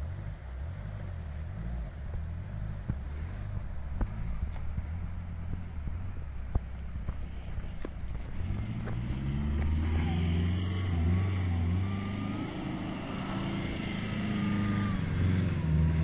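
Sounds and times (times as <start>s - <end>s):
suv engine labouring: 0.0s - 16.0s.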